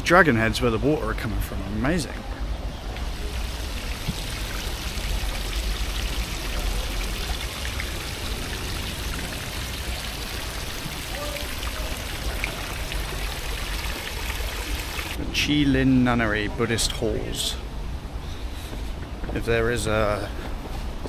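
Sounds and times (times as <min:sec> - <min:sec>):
water splashing into pond: 0:02.9 - 0:15.2.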